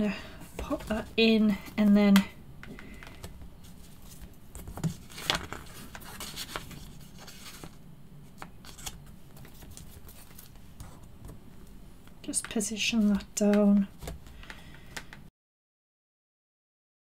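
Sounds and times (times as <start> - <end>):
plastic rustling and crinkling: 2.7 - 11.1.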